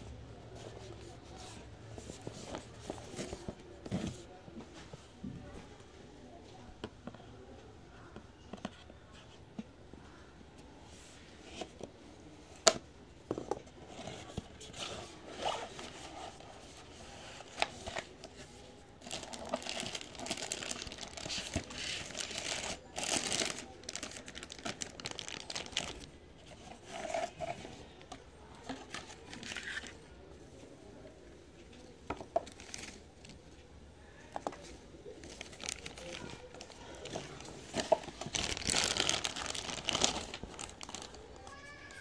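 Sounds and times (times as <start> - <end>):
plastic wrapping crinkling: 19.0 - 26.1, 35.2 - 41.3.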